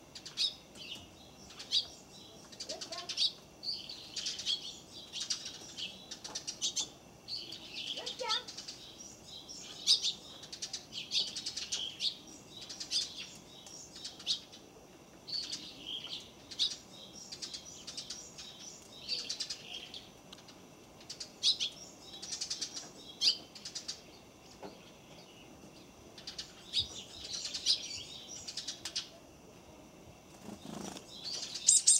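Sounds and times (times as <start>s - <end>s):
high bird chirps: 30.6s - 31.9s.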